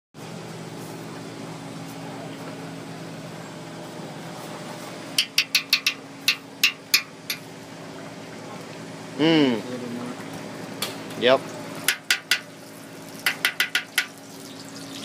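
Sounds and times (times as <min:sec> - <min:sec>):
steady low hum: 0:00.2 - 0:13.1
metal spoon knocking on cauldron: 0:05.2 - 0:07.4, 0:11.9 - 0:12.5, 0:13.2 - 0:14.1.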